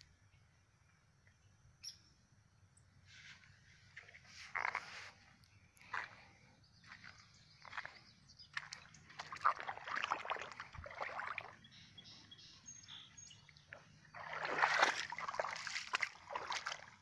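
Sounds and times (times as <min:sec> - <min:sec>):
footsteps wading through water: 0:03.8 - 0:17.0.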